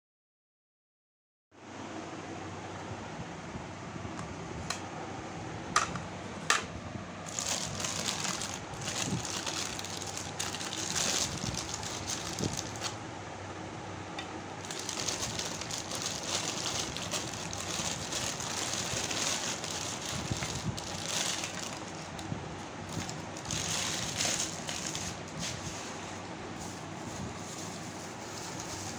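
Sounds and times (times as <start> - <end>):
plastic bag crinkling: 7.2 - 13.0, 14.6 - 26.1.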